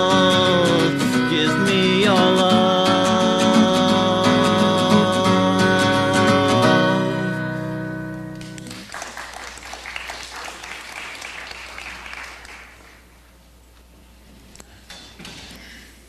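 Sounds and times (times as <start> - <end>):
audience applause: 8.4 - 13.1.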